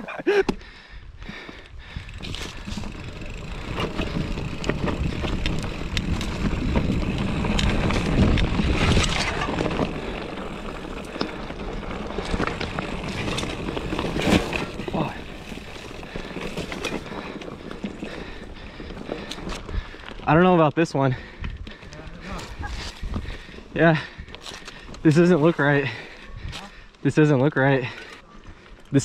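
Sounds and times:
bike tyres on dirt trail: 0.0 - 29.0
bike rattling over bumps: 0.2 - 29.0
wind buffeting microphone: 1.1 - 20.0, 26.2 - 26.8.

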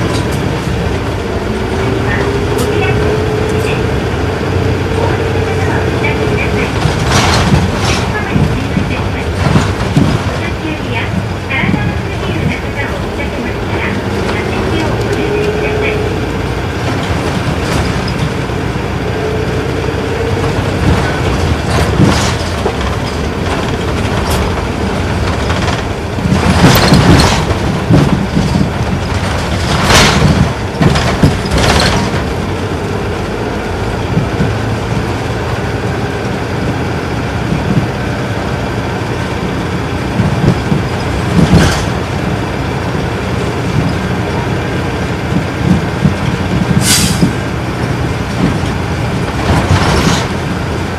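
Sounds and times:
bus diesel engine: 0.0 - 50.9
road noise: 0.0 - 50.9
loud rattles and jolts: 20.4 - 32.6.

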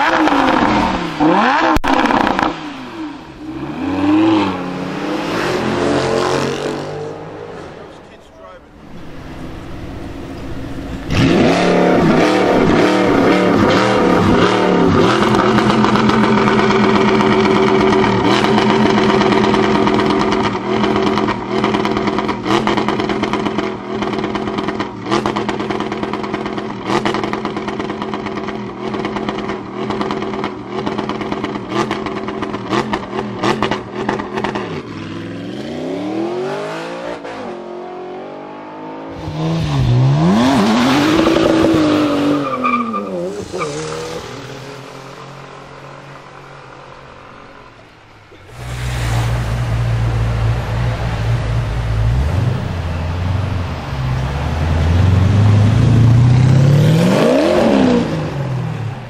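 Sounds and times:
sports car engine revving: 8.9 - 47.4, 54.4 - 59.0.

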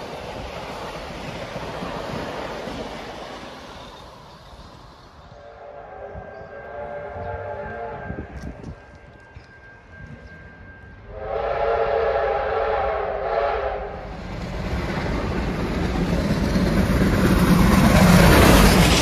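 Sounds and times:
train rumbling and rattling: 0.0 - 19.0
steam locomotive whistle: 5.3 - 9.0, 10.0 - 14.0.

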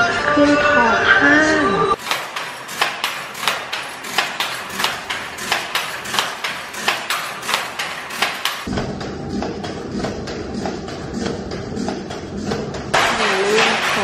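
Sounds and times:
wooden handloom clacking: 2.0 - 8.7, 12.5 - 14.0.

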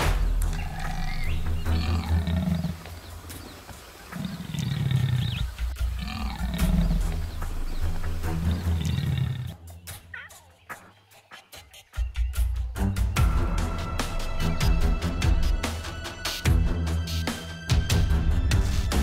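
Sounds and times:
background music: 0.0 - 19.0
big cat roaring: 0.6 - 2.9, 4.1 - 7.2, 8.4 - 9.6.

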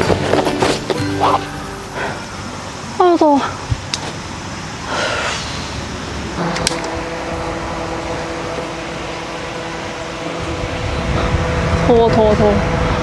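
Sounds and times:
fan motor hum: 0.0 - 13.0.

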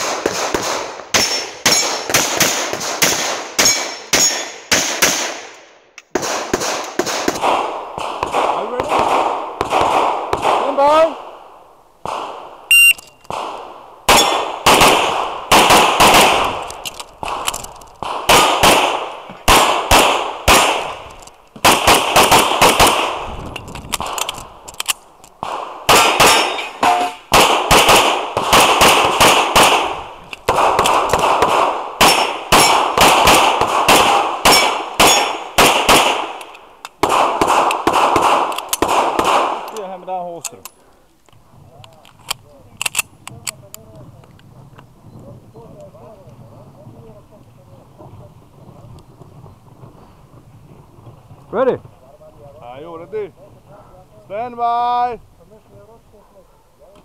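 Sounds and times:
pistol shots: 0.0 - 11.4, 12.0 - 23.3, 25.4 - 39.8
bullets ringing on steel targets: 1.2 - 2.0, 3.6 - 4.6, 26.0 - 27.3
shot timer beep: 12.7 - 13.2.

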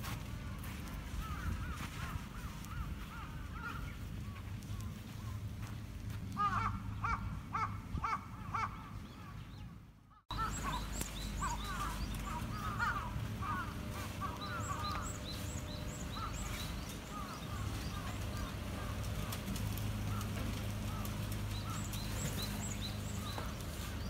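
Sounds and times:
low steady rumble: 0.0 - 24.0
crow cawing: 6.4 - 8.8, 10.3 - 19.4, 20.0 - 22.0
small birds chirping: 8.2 - 24.0.

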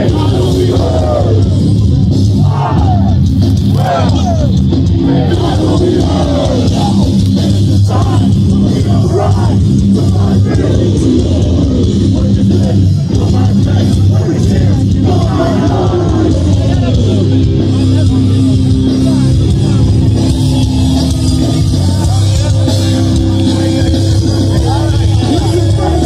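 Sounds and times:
live rock band playing: 0.0 - 26.0
person singing: 3.7 - 26.0.

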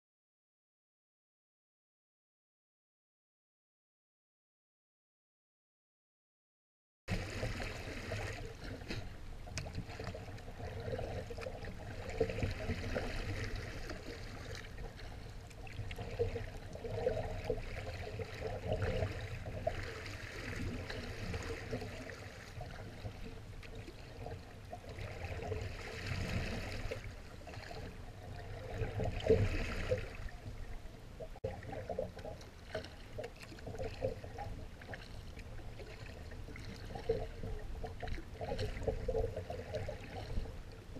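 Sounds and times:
water lapping against kayak: 7.1 - 40.9.

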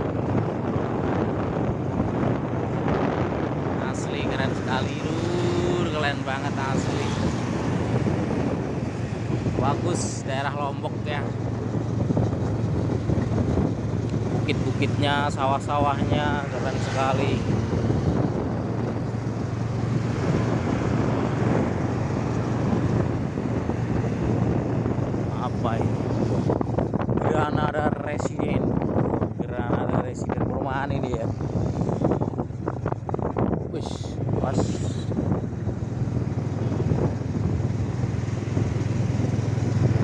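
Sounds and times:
wind buffeting microphone: 0.0 - 40.0
motorcycle engine running: 10.9 - 15.0, 34.2 - 40.0.

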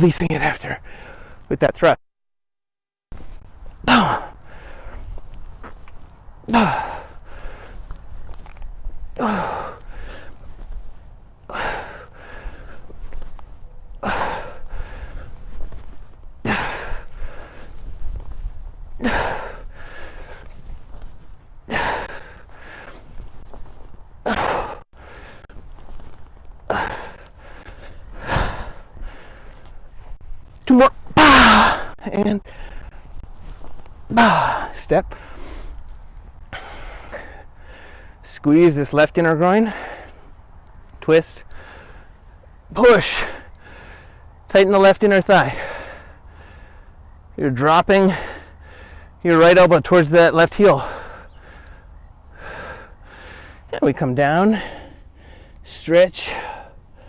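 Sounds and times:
soft breaths: 0.8 - 1.5, 3.1 - 30.6, 32.4 - 38.3, 39.6 - 44.5, 45.5 - 47.3, 48.0 - 49.3, 50.7 - 57.0
man's forceful exhalations: 3.8 - 5.0, 6.5 - 7.8, 9.1 - 10.4, 14.0 - 15.3, 16.4 - 17.8, 21.7 - 23.0, 24.2 - 25.6, 26.7 - 29.7, 34.1 - 35.7.

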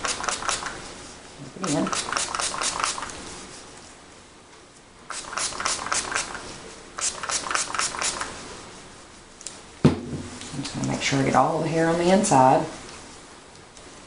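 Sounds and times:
gloved hands scrubbing wet fur: 0.0 - 3.8, 5.1 - 9.2.

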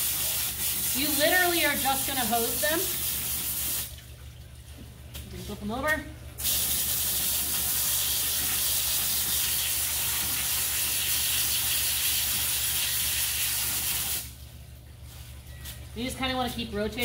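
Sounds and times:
hose nozzle spraying water: 0.0 - 4.0, 6.4 - 14.4.

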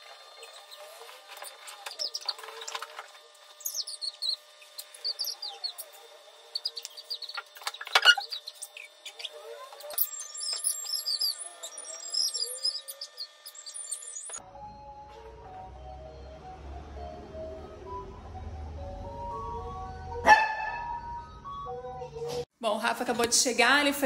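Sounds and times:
birds chirping: 0.3 - 14.4.

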